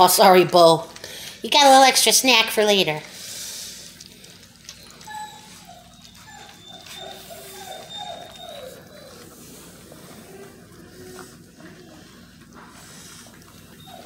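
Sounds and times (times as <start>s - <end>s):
wet eating clicks: 4.0s - 6.8s
puppies whining: 4.4s - 14.0s.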